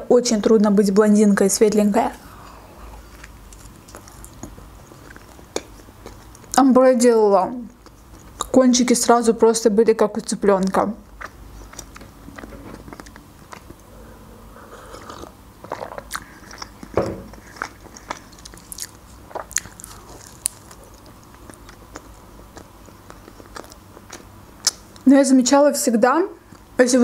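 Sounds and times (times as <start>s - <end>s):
biting and chewing flatbread: 3.0s - 6.6s, 11.1s - 13.8s, 14.9s - 25.0s.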